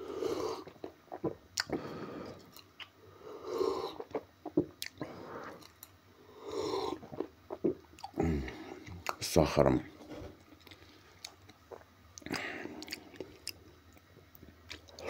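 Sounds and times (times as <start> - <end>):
gulps and mouth clicks: 0.6 - 1.8, 3.8 - 5.9, 10.6 - 13.6.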